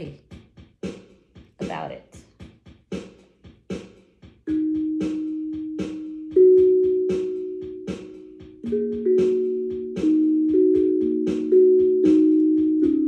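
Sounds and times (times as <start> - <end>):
steel tongue drum notes ringing: 4.5 - 13.0.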